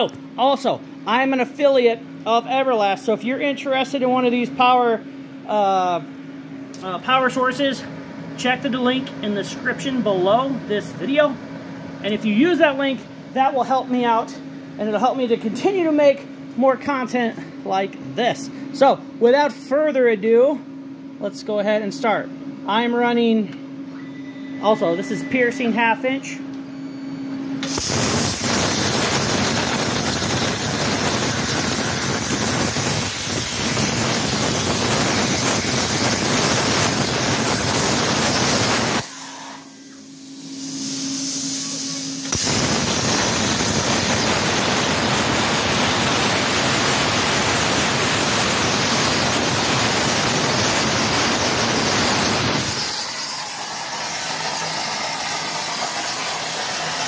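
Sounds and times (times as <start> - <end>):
faint hum: 0.0 - 47.8
plasma torch cutting steel: 27.6 - 57.0.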